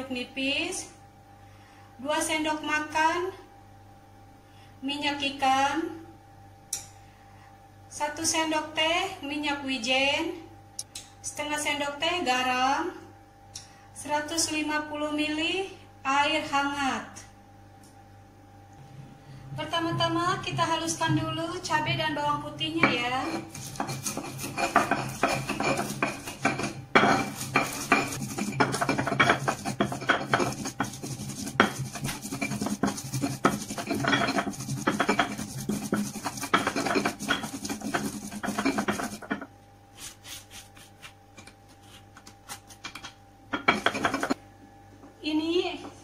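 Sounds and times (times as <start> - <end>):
stone pestle grinding in mortar: 19.8 - 41.2, 41.8 - 44.4
plastic spatula scraping stone: 23.2 - 39.4.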